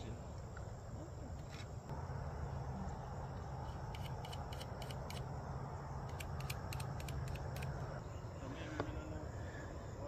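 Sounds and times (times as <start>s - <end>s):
insects chirping: 0.0s - 10.0s.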